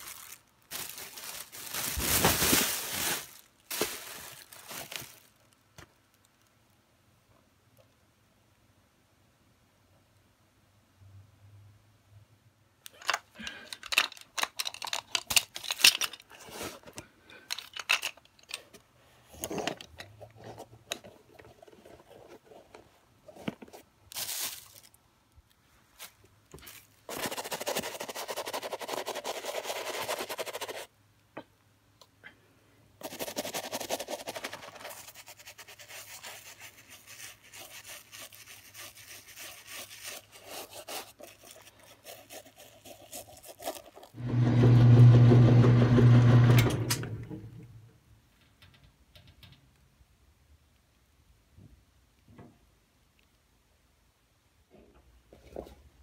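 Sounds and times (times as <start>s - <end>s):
toothbrush scrubbing leather: 27.1s - 30.9s, 33.0s - 44.2s.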